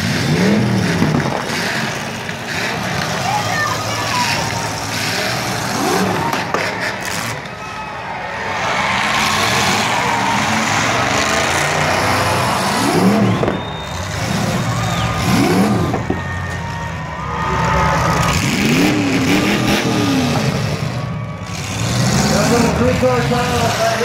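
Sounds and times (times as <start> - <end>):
car engines revving: 0.0 - 24.0.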